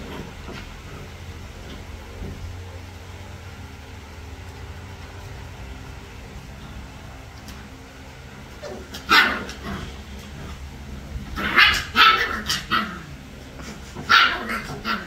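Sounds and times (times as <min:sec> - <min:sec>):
puppies barking and yipping: 0:08.4 - 0:15.0.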